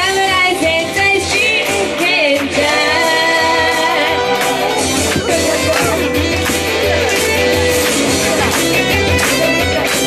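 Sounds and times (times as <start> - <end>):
woman singing into microphone: 0.0 - 6.0
instrumental pop accompaniment: 0.0 - 10.0.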